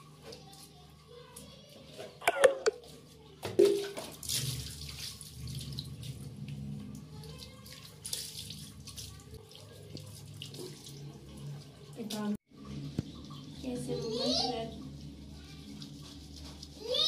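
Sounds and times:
water splashing on tiled floor: 0:03.4 - 0:14.7.

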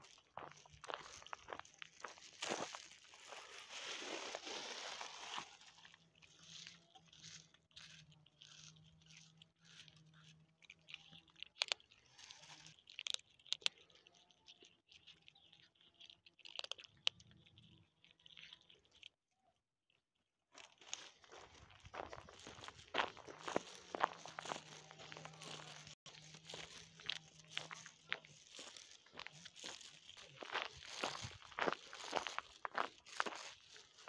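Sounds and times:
rustling: 0:00.0 - 0:13.6, 0:20.6 - 0:34.0
cats crunching dry kibble: 0:00.0 - 0:19.2, 0:20.5 - 0:34.0.

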